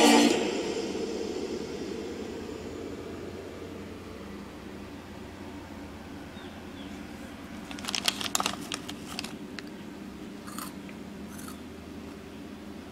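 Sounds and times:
steady low hum: 0:00.0 - 0:12.9
foil snack bag crinkling: 0:07.6 - 0:09.8.

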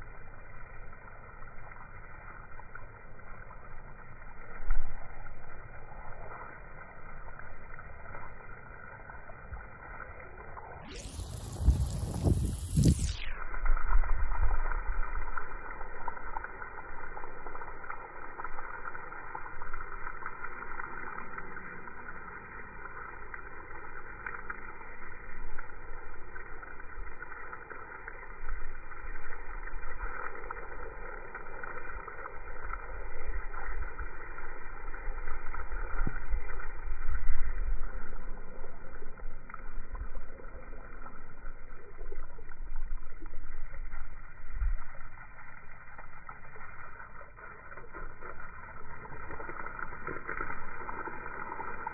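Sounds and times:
slowed water spray rush: 0:00.0 - 0:51.9
low rumbles: 0:10.8 - 0:13.3.

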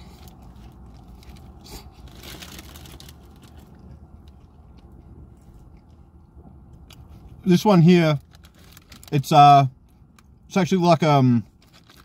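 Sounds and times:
low steady hum: 0:00.0 - 0:12.0
paper bag crackling: 0:01.1 - 0:03.6, 0:11.6 - 0:12.0
person chewing: 0:03.6 - 0:07.4.

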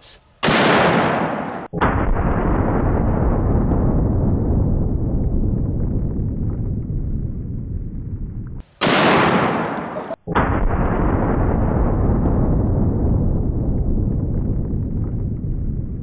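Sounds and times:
sharp gunshot crack: 0:00.4 - 0:04.1, 0:08.7 - 0:13.0
deep slowed rifle boom: 0:00.4 - 0:16.0.

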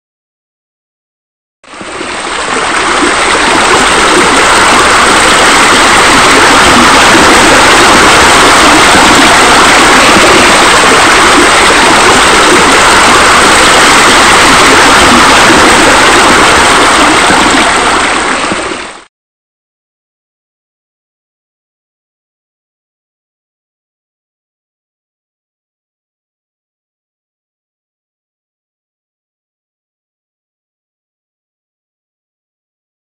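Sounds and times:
running water rushing: 0:01.7 - 0:19.1.

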